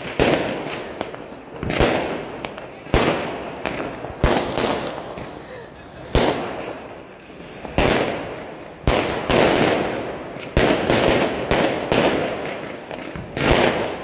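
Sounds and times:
fireworks bangs with crackle: 0:00.0 - 0:14.0.

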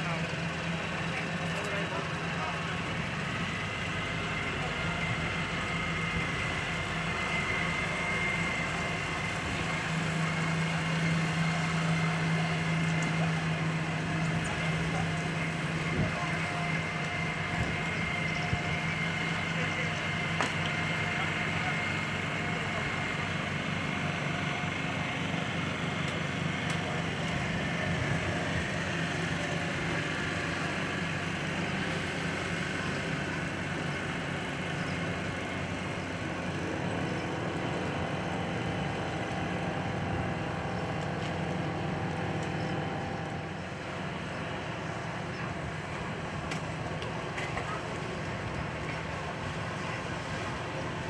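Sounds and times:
motorboat engine running: 0:00.0 - 0:51.0.

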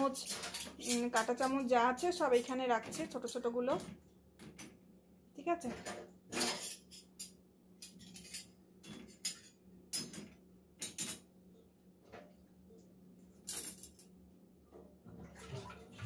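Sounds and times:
metal cutlery clinking: 0:00.0 - 0:03.5, 0:05.8 - 0:11.3, 0:13.4 - 0:14.1.

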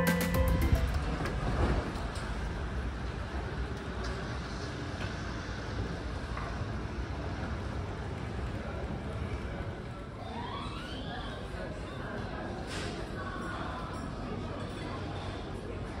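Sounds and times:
background music: 0:00.0 - 0:01.5
low rumble and hiss of hall: 0:00.0 - 0:10.4.

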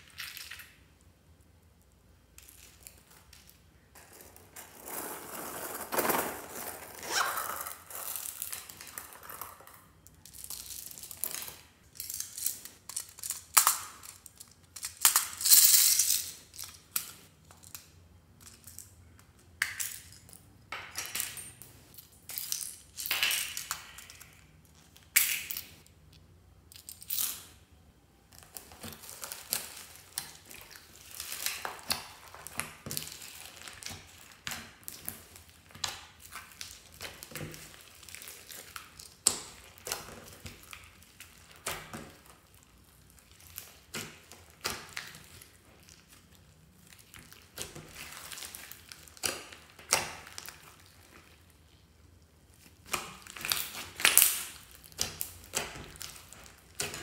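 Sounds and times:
slime squishing and crackling: 0:28.3 - 0:57.0.

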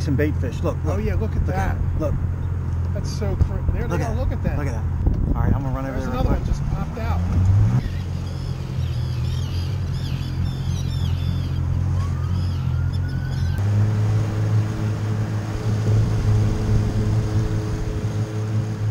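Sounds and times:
boat engine running: 0:00.0 - 0:18.9
wind noise: 0:03.4 - 0:08.0, 0:13.1 - 0:18.9
high chirping calls: 0:07.8 - 0:13.6.

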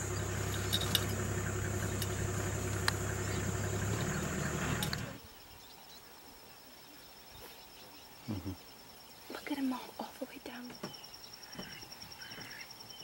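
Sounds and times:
vehicle engine idling: 0:00.0 - 0:05.2
high insect drone: 0:00.0 - 0:07.2, 0:08.1 - 0:13.0.

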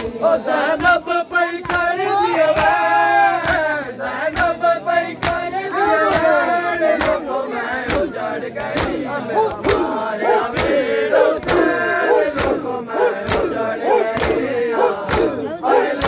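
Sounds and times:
men chanting together: 0:00.0 - 0:16.0
hands slapping chests: 0:01.6 - 0:02.8, 0:03.4 - 0:03.7, 0:04.3 - 0:04.6, 0:05.2 - 0:06.4, 0:07.0 - 0:07.2, 0:07.8 - 0:16.0.

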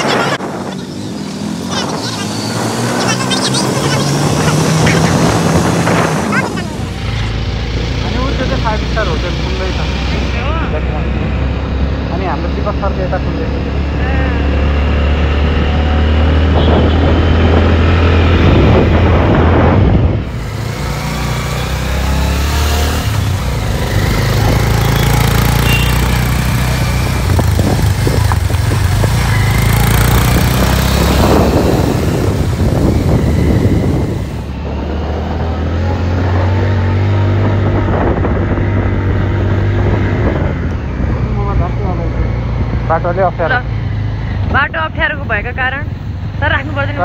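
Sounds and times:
road noise: 0:00.0 - 0:47.0
motorcycle engine running: 0:20.2 - 0:47.0.

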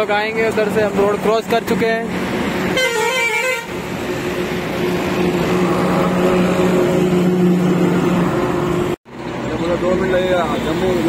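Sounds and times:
highway traffic: 0:00.0 - 0:11.0
vehicle horn honking: 0:02.7 - 0:03.8.

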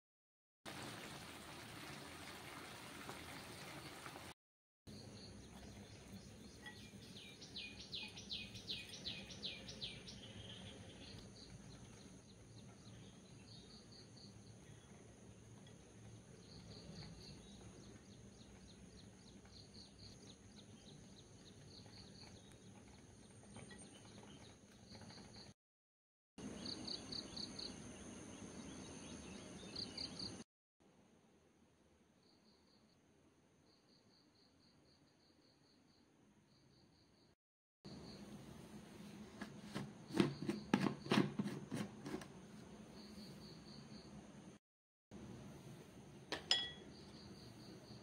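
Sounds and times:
faint outdoor ambience: 0:04.9 - 0:25.5, 0:45.2 - 0:48.0.

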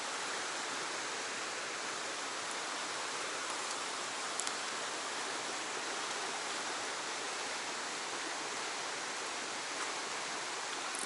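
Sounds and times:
stream rushing over rock: 0:00.0 - 0:11.0
faint ticks: 0:03.4 - 0:04.8, 0:10.7 - 0:11.0.

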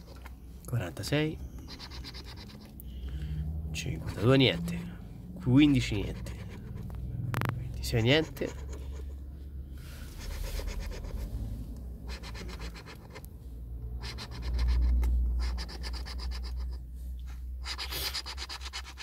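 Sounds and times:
coin scraping scratch-off ticket: 0:01.6 - 0:02.7, 0:12.1 - 0:13.2, 0:14.0 - 0:16.7, 0:17.6 - 0:19.0.

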